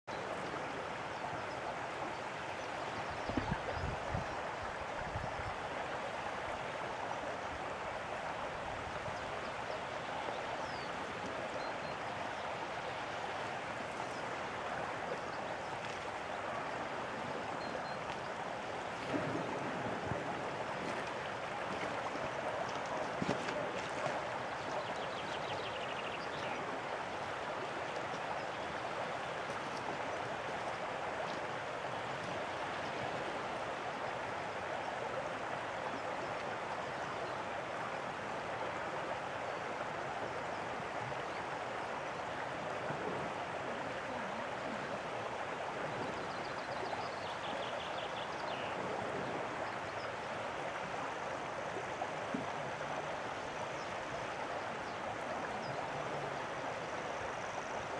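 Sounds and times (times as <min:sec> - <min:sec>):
water running over shingle: 0:08.0 - 0:36.8.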